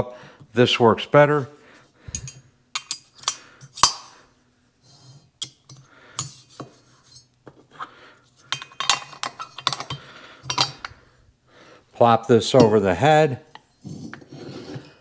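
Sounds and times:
metal parts clinking and scraping: 2.1 - 4.1, 8.4 - 11.0.

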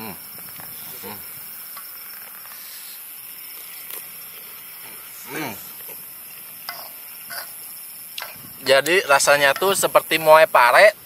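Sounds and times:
steady hiss: 0.0 - 11.0
people chewing: 3.4 - 9.8.

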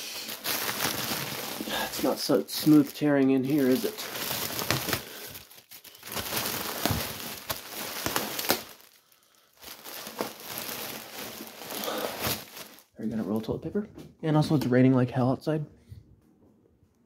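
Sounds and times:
plastic wrapping crinkling and tearing: 0.0 - 13.6.

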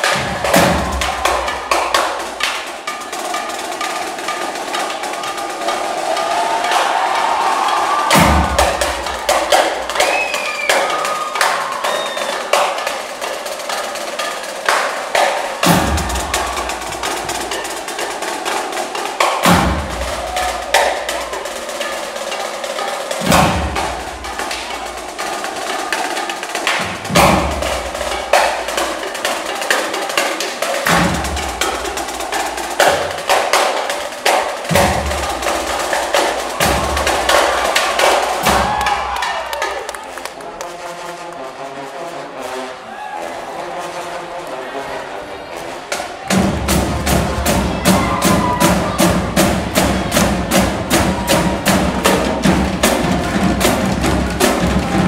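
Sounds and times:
drumline playing a cadence: 0.0 - 55.0.

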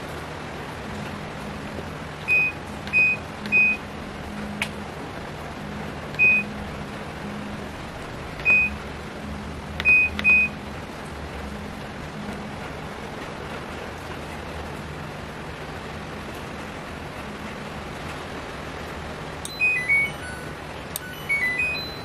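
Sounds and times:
steady low hum: 0.0 - 22.0
short high button beeps: 6.2 - 6.5, 8.4 - 8.8, 9.8 - 10.5, 19.5 - 22.0.

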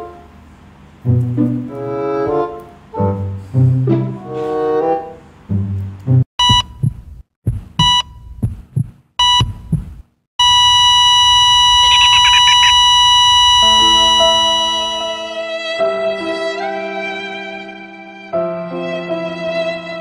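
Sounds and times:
music: 0.0 - 0.3, 1.0 - 6.3, 13.7 - 20.0
heartbeat thumps: 6.4 - 10.2
heart monitor beeps: 6.4 - 15.4
flatline tone: 10.4 - 15.4.

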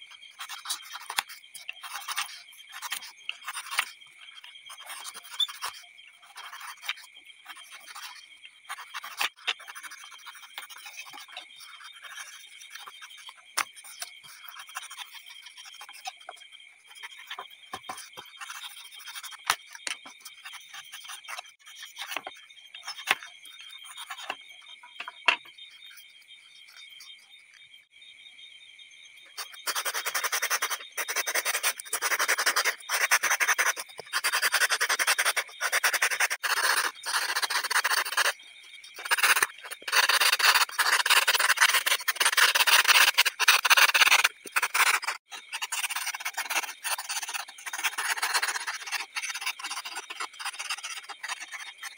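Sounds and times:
knife scratching styrofoam: 0.4 - 4.0, 4.7 - 16.2, 29.4 - 38.4, 39.0 - 51.9
metal blade rasping on foam: 39.0 - 51.6.

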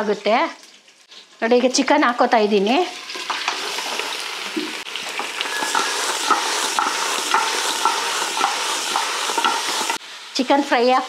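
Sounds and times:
meat and onions sizzling in oil: 0.0 - 11.0
metallic scrapes of pot and bowl: 5.4 - 10.0.

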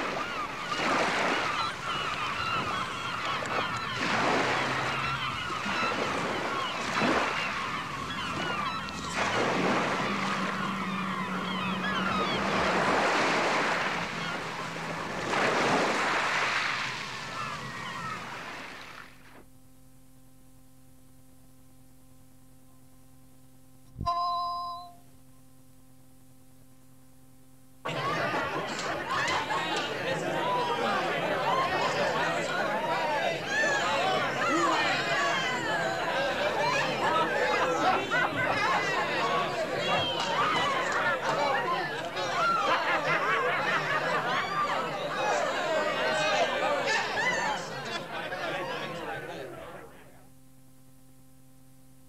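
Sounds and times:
faint tape hum: 0.0 - 52.0
cueing chime: 24.0 - 25.0.

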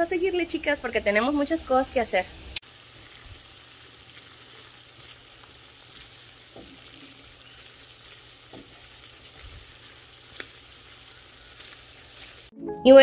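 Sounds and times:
food sizzling in a frying pan: 0.0 - 12.5
spatula stirring and scraping: 2.9 - 12.5.

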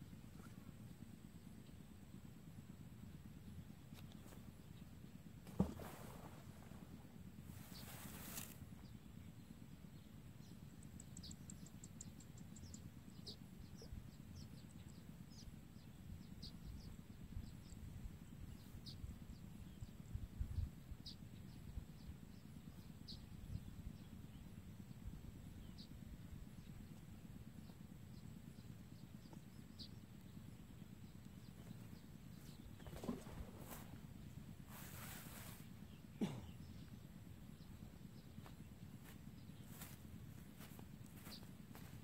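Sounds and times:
low steady rumble: 0.0 - 42.0
soft low thumps: 5.5 - 7.9
small bird chirping: 26.6 - 42.0.

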